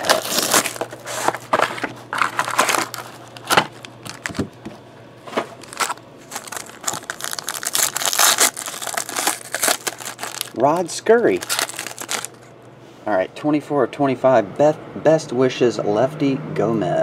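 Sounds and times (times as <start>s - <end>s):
plastic wrappers crinkling: 0.0s - 4.5s, 5.5s - 12.5s.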